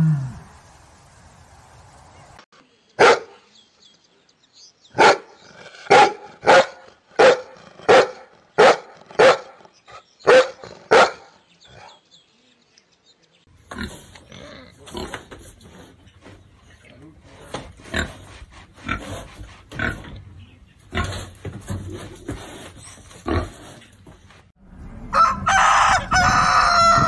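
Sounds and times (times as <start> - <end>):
dog barking: 3.0 - 3.4, 5.0 - 5.3, 5.9 - 9.6, 10.2 - 11.4.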